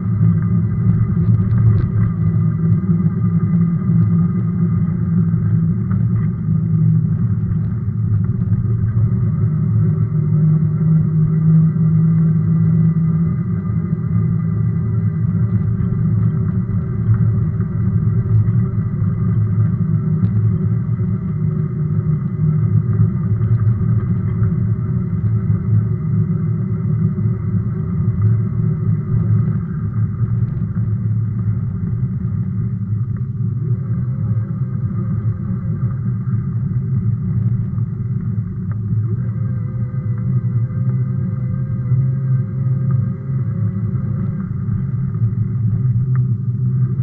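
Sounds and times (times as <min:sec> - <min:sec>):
bike tyres on rough asphalt: 0:00.0 - 0:10.0, 0:15.2 - 0:40.6
wind on microphone: 0:00.0 - 0:47.0.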